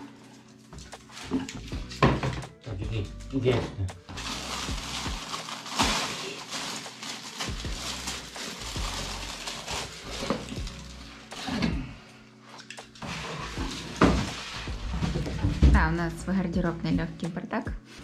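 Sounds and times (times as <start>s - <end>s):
faint background music: 0.0s - 18.0s.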